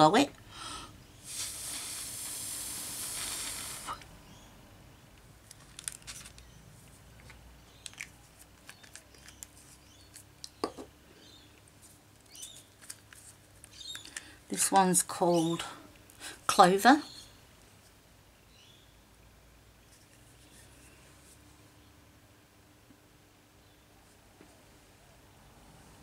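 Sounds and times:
breath blown through lips: 0:00.5 - 0:04.1.

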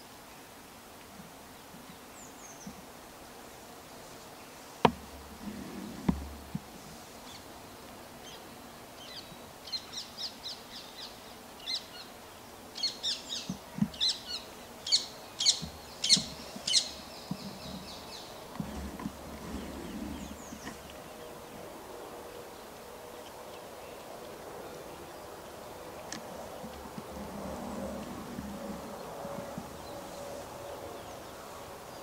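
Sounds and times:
faint outdoor background: 0:00.0 - 0:32.0
songbird chirping: 0:04.4 - 0:32.0.

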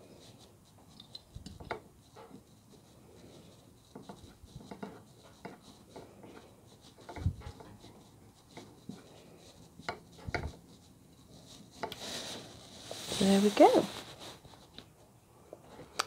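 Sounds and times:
light clicks and rubbing of metal parts: 0:00.0 - 0:12.1.

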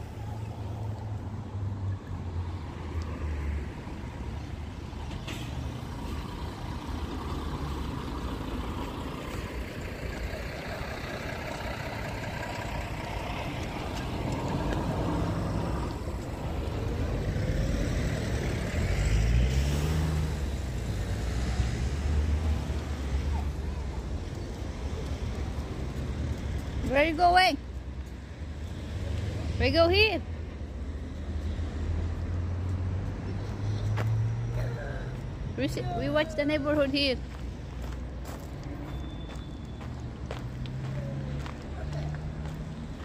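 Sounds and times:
vehicle engine: 0:00.0 - 0:43.0
engine speeding up: 0:05.7 - 0:24.0.

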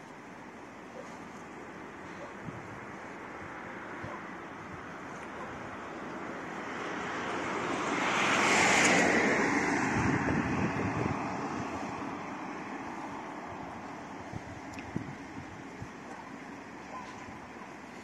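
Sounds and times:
vehicle passing by: 0:05.7 - 0:14.2.

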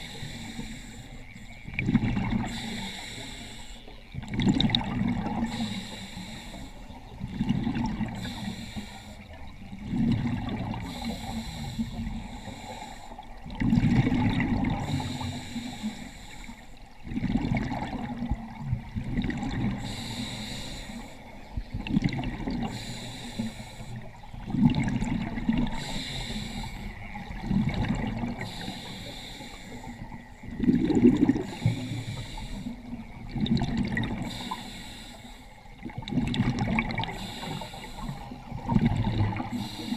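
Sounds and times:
scuba regulator hissing inhale: 0:00.0 - 0:01.5, 0:02.4 - 0:03.9, 0:05.4 - 0:07.0, 0:08.0 - 0:09.4, 0:10.8 - 0:13.2, 0:14.8 - 0:16.8, 0:19.7 - 0:21.4, 0:22.6 - 0:24.2, 0:25.7 - 0:27.0, 0:28.3 - 0:30.2, 0:31.2 - 0:33.0, 0:34.2 - 0:35.7, 0:37.0 - 0:38.5, 0:39.3 - 0:39.9
exhaled bubbles rushing: 0:01.7 - 0:02.6, 0:04.2 - 0:05.6, 0:07.1 - 0:08.4, 0:09.4 - 0:11.4, 0:13.4 - 0:15.3, 0:17.0 - 0:20.0, 0:21.7 - 0:22.8, 0:24.4 - 0:25.9, 0:27.1 - 0:28.6, 0:30.1 - 0:31.8, 0:32.9 - 0:34.4, 0:35.8 - 0:39.6.

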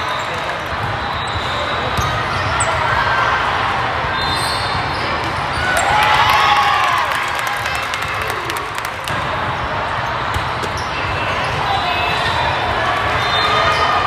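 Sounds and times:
sneaker squeaks: 0:00.0 - 0:03.0, 0:04.1 - 0:05.8, 0:09.9 - 0:14.0
crowd chatter: 0:00.0 - 0:14.0.

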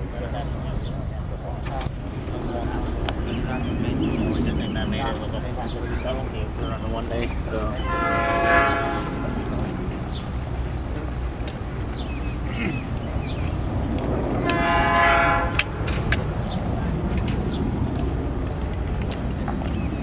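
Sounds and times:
diesel locomotive engine rumbling: 0:00.0 - 0:20.0
train air horn blast: 0:07.8 - 0:09.8, 0:14.4 - 0:15.8.

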